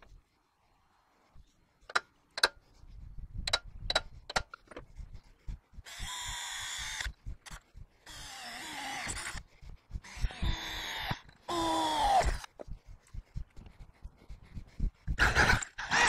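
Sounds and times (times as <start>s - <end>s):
sharp metallic taps: 3.4s - 4.8s
cordless drill boring steel: 5.8s - 7.1s, 8.0s - 12.5s, 15.2s - 16.0s.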